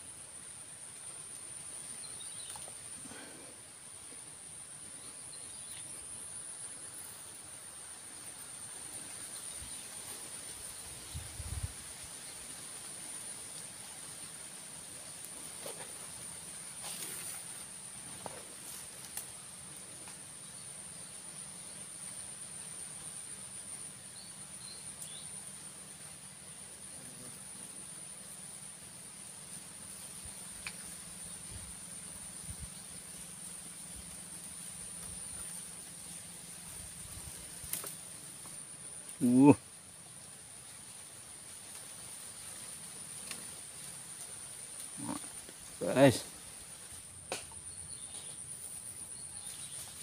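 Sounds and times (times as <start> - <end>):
insects calling high-pitched: 0.0 - 50.0
high-pitched insect drone: 45.0 - 47.1.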